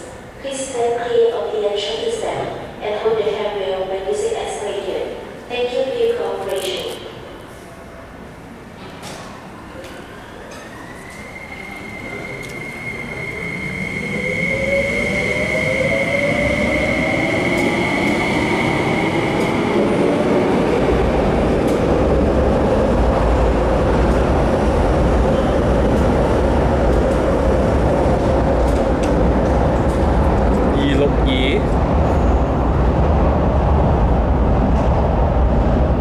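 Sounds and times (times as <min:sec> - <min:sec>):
deep rumble of running train: 0:11.6 - 0:36.0.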